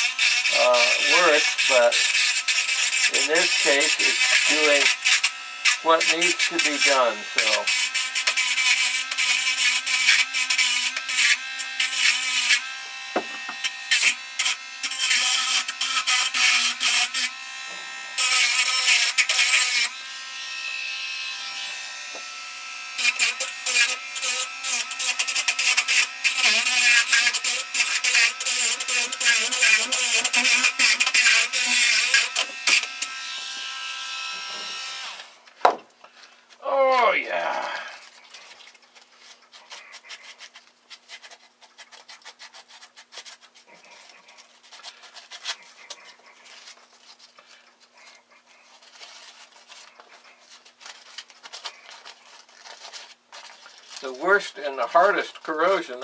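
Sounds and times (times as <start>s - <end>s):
grinder scraping metal wire: 0.0s - 22.4s, 23.0s - 35.4s, 36.8s - 56.0s
rotary grinder whining: 0.0s - 35.4s.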